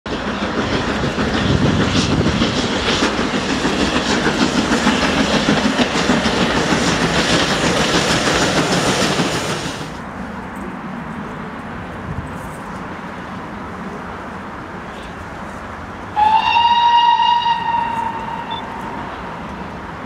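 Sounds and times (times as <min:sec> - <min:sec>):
train wheels clattering over rail joints: 0:00.1 - 0:10.0.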